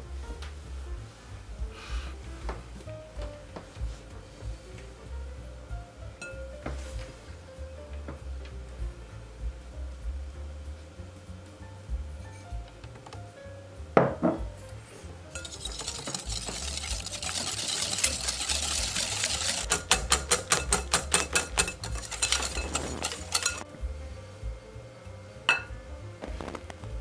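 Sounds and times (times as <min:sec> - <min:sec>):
whisk beating in glass bowl: 0:15.3 - 0:23.6.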